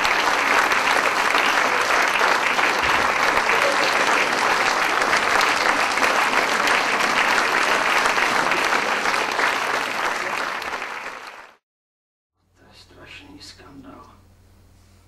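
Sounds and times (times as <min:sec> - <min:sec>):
audience applauding: 0:00.0 - 0:11.6.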